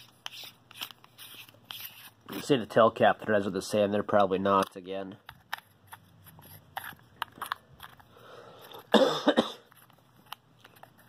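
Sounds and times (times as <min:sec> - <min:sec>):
person coughing: 0:08.8 - 0:09.7.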